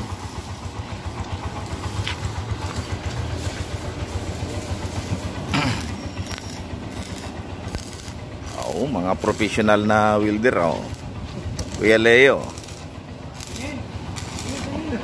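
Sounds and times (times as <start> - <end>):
low pulsing machine drone: 0.0 - 15.0.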